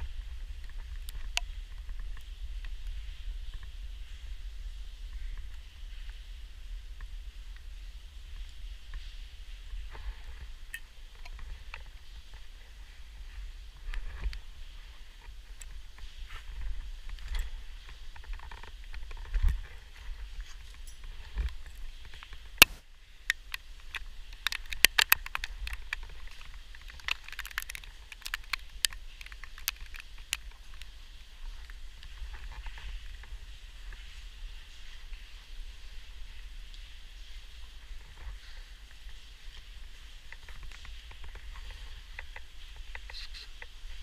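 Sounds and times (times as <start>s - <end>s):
steady hiss: 0.0s - 44.0s
rope gear clicking and clinking: 20.4s - 30.6s.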